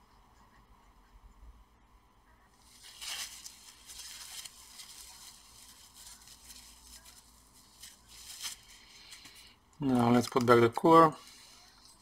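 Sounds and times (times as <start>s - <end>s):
gloved hand rustling parts: 2.6s - 10.6s.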